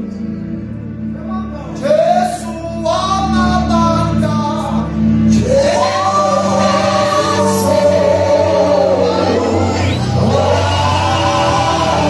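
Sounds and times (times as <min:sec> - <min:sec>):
bass: 0:00.0 - 0:12.0
keyboard chords: 0:00.0 - 0:12.0
voices singing held note: 0:05.3 - 0:12.0.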